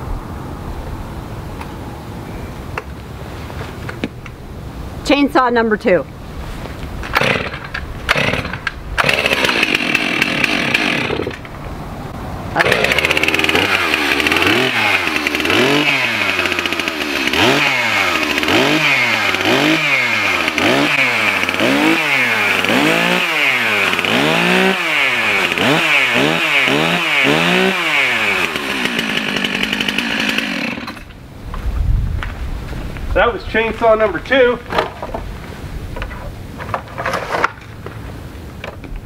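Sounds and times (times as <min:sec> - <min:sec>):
chainsaw revving and idling: 0:07.1 - 0:11.4, 0:12.6 - 0:31.1.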